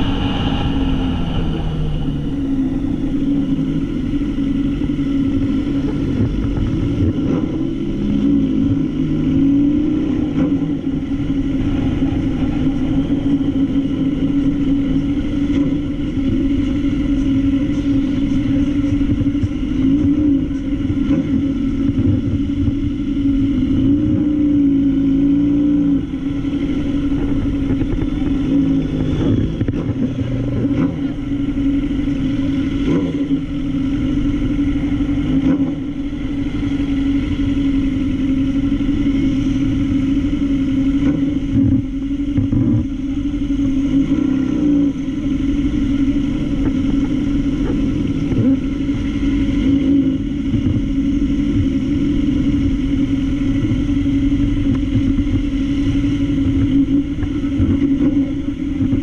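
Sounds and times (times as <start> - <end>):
motorcycle engine at low revs: 1.3 - 59.0.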